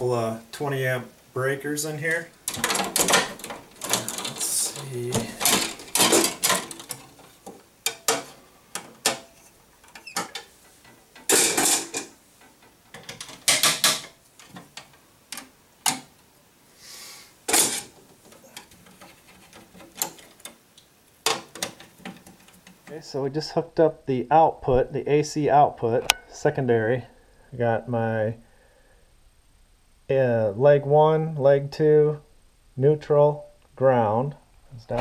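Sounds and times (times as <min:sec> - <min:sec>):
wires clicking into breaker terminals: 0:01.8 - 0:16.4, 0:17.4 - 0:23.2.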